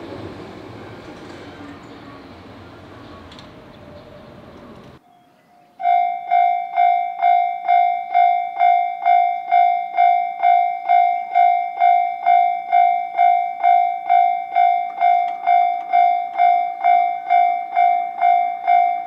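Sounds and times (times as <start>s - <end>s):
level crossing warning bell: 5.8s - 19.0s.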